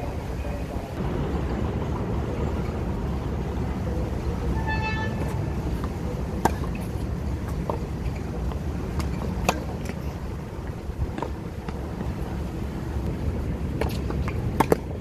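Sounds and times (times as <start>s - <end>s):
tennis ball off racquet strings: 13.8s - 14.9s.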